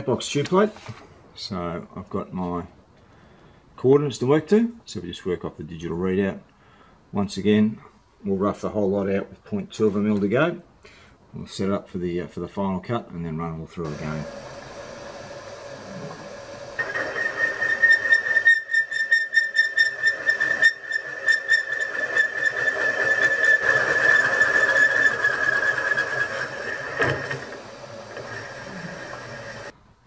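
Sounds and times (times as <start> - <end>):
high whistle from metal cutting: 13.9 - 29.7
milling machine spindle running: 13.9 - 29.7.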